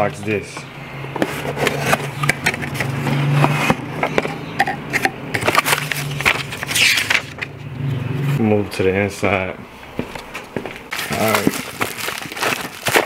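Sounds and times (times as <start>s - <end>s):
paper rustling: 5.4s - 7.5s, 10.9s - 13.0s
cardboard box being opened: 10.9s - 13.0s.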